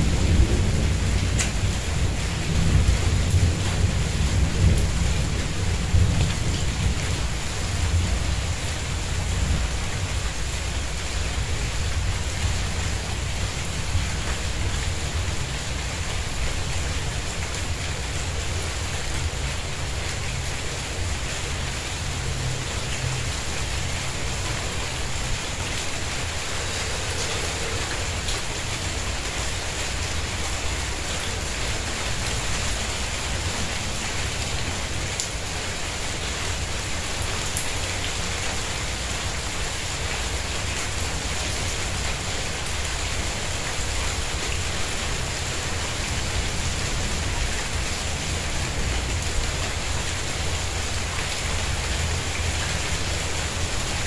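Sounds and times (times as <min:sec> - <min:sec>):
steady rain hiss: 0:00.0 - 0:54.0
rain drop ticks: 0:01.2 - 0:01.7, 0:35.1 - 0:35.4.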